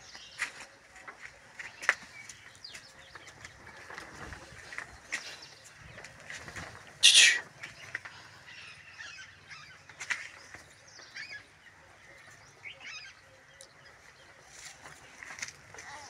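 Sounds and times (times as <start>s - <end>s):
poultry calling: 7.0s - 7.5s.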